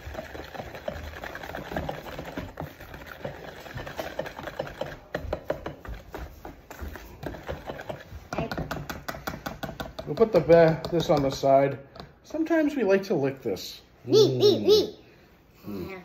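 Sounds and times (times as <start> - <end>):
whisk clicking against bowl: 0.0 - 12.1
whisk stirring thick batter: 0.0 - 12.2.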